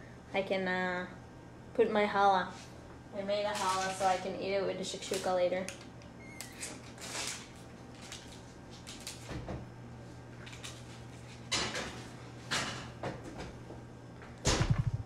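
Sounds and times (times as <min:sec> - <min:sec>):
low steady hum: 0:00.0 - 0:15.0
oven door opening and shutting: 0:14.4 - 0:15.0.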